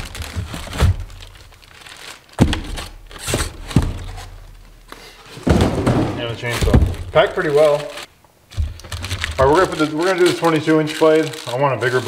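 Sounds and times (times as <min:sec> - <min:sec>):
plastic bags crinkling: 0:00.0 - 0:04.8, 0:05.4 - 0:12.0.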